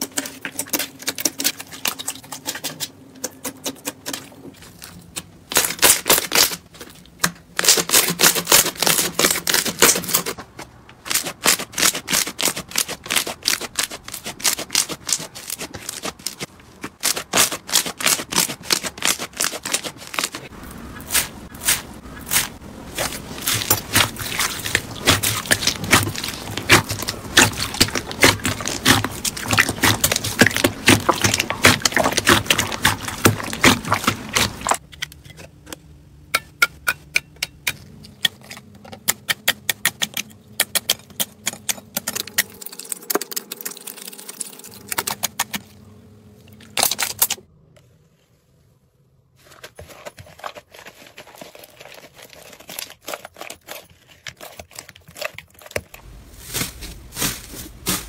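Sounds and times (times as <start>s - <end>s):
crunchy slime crackling and popping: 4.0s - 10.4s, 11.0s - 34.8s, 50.2s - 58.0s.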